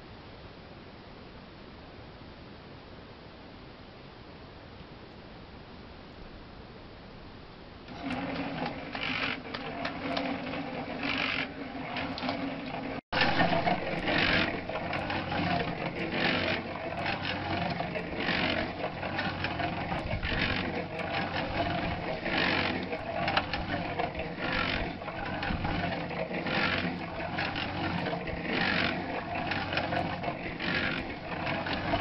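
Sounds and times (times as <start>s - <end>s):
cement mixer running: 7.9s - 32.0s
wet load tumbling in drum: 7.9s - 32.0s.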